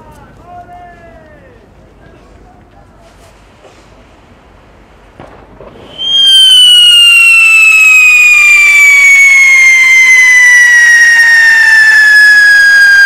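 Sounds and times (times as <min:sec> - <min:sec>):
firework fountain whistling: 0:05.2 - 0:13.0.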